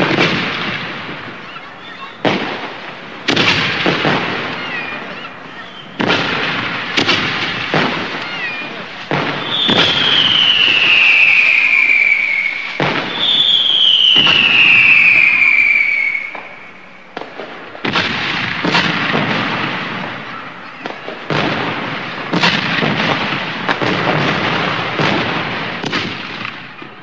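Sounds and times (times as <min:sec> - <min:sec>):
firework bangs and crackling: 0:00.0 - 0:27.0
firework whistle falling in pitch: 0:08.1 - 0:16.9.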